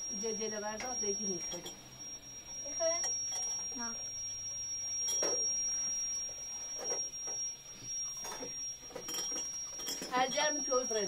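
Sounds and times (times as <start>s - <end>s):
high-pitched whine: 0.0s - 11.0s
glass cups clinking on metal tray: 1.5s - 1.8s, 5.0s - 5.4s, 8.2s - 10.4s.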